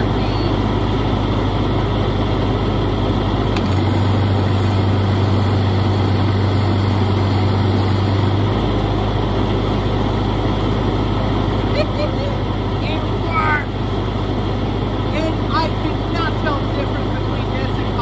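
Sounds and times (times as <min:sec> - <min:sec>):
welder engine running: 0:00.0 - 0:18.0
welding arc: 0:03.6 - 0:08.4.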